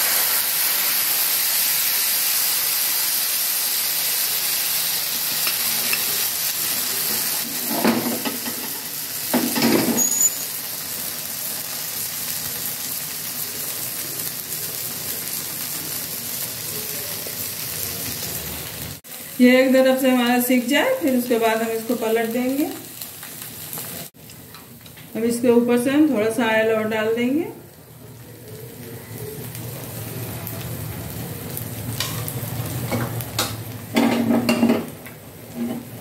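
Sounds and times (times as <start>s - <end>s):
batter sizzling on a griddle: 0.0s - 36.0s
griddle clattering: 5.4s - 10.4s, 31.9s - 36.0s.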